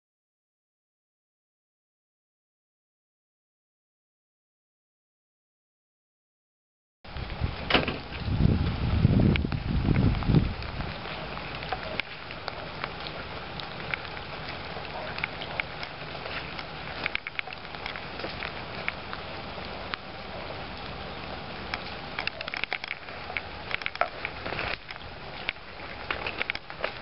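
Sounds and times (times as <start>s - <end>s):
light ticks and crackles: 7.1s - 27.0s
steady outdoor hiss: 7.1s - 27.0s.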